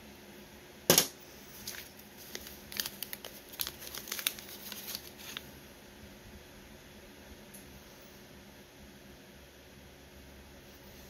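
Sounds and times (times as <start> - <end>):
wrapping paper crinkling: 1.5 - 5.5.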